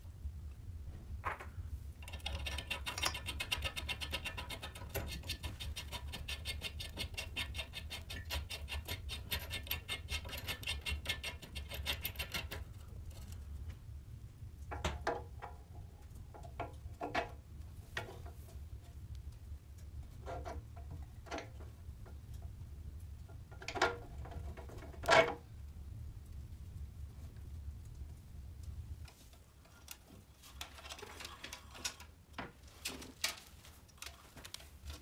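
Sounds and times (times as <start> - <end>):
small metallic ticks: 2.0 - 13.3.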